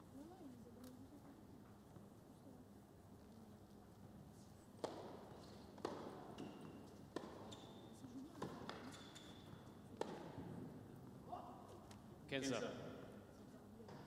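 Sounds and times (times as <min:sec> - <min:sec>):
tennis ball struck and bouncing: 0:04.8 - 0:07.8, 0:08.4 - 0:10.8
shoes squeaking on court: 0:05.3 - 0:10.1.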